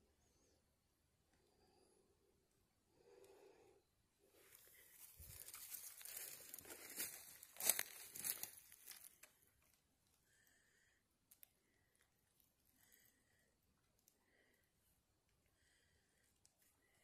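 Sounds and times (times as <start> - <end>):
rustling crinkling handling noise: 4.9 - 9.4.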